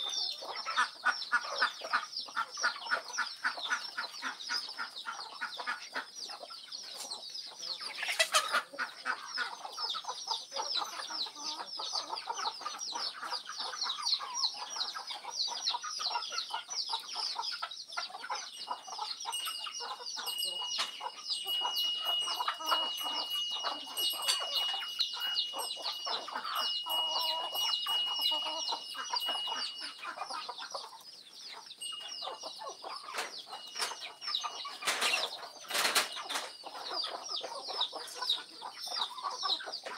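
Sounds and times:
chickens clucking: 0.0s - 39.9s
rapid high chirping: 13.7s - 39.9s
thin steady high tone: 18.4s - 35.6s.

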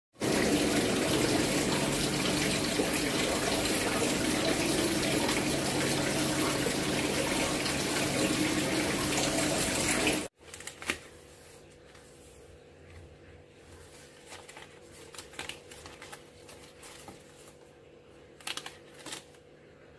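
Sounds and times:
falling water rushing: 0.2s - 10.3s.

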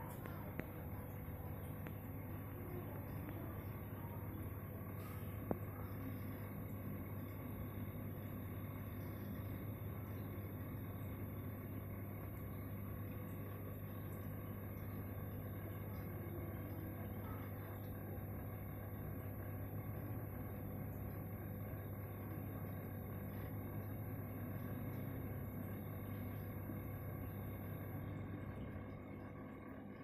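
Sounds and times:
aquarium equipment humming: 0.0s - 30.0s.

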